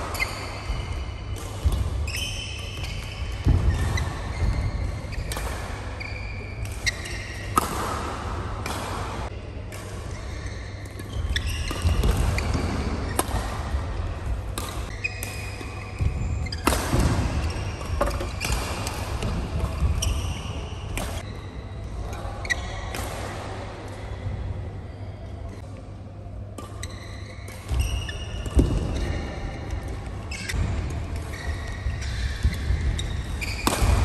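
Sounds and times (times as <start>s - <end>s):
shoes squeaking on court: 0.0s - 8.0s, 10.1s - 13.8s, 19.6s - 21.4s, 26.8s - 29.7s, 30.3s - 34.0s
rackets striking shuttlecock: 0.0s - 21.3s, 26.6s - 34.0s.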